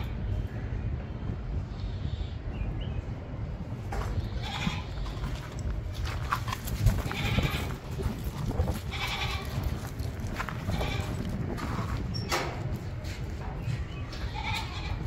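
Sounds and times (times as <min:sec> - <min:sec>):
goats bleating: 0:04.2 - 0:05.4, 0:06.9 - 0:11.3, 0:14.2 - 0:15.0.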